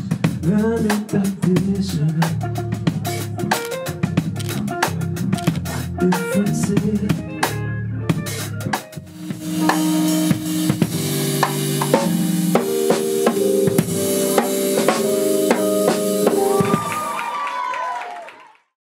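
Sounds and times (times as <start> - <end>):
drum kit: 0.0 - 17.4
keyboard chords: 2.5 - 17.4.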